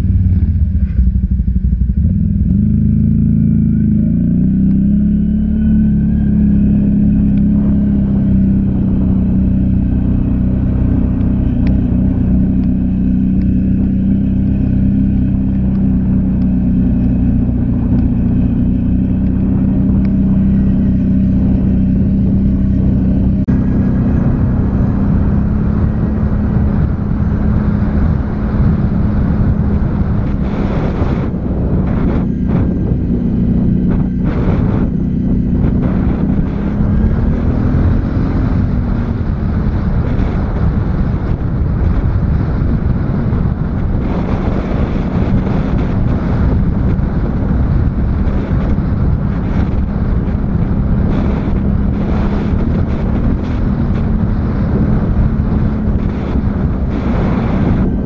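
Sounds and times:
atv engine running: 0:00.0 - 0:58.0.

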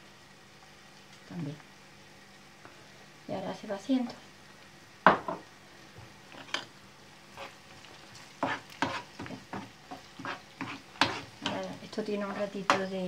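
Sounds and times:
food sizzling: 0:00.0 - 0:13.0
metal spoon scraping frying pan: 0:07.4 - 0:07.6, 0:08.4 - 0:12.9.

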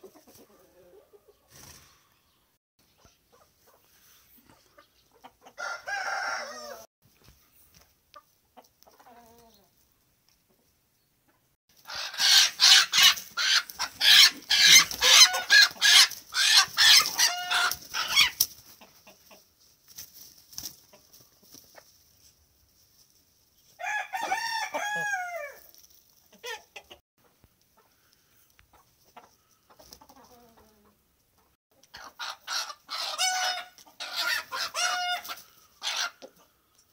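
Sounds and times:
chicken squawking: 0:11.8 - 0:18.5, 0:31.9 - 0:36.3.

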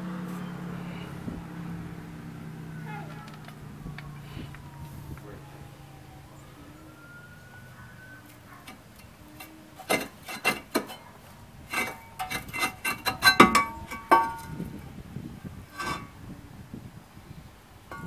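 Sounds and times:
metal clanks ringing: 0:08.6 - 0:11.1, 0:11.7 - 0:14.8, 0:15.7 - 0:16.2.

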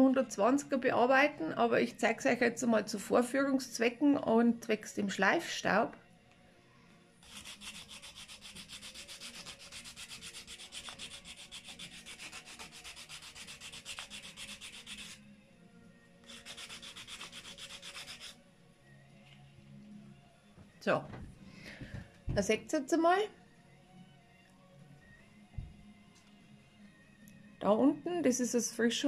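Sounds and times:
sandpaper rasping on wood: 0:07.2 - 0:15.2, 0:16.3 - 0:18.4.

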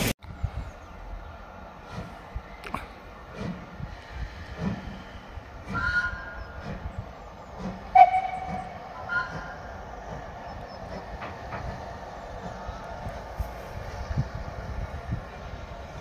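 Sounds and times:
steam train running: 0:00.8 - 0:16.0
train whistle: 0:05.7 - 0:06.5, 0:07.9 - 0:09.7.

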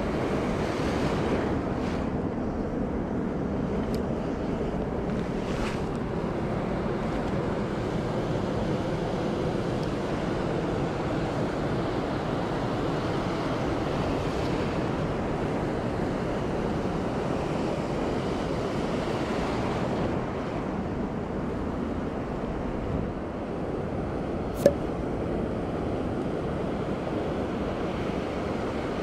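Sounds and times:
surf washing over sandy beach: 0:00.0 - 0:02.4, 0:03.6 - 0:21.0.

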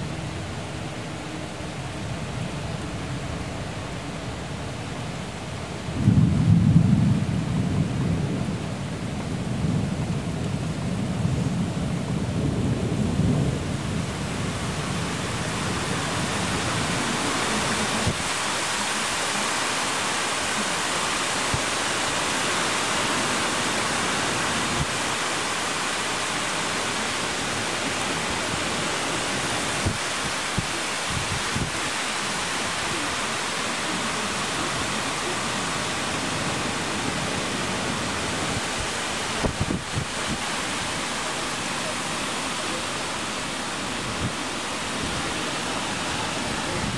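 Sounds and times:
heavy rain hissing: 0:00.0 - 0:46.9
thunder rumbling: 0:05.7 - 0:18.4.

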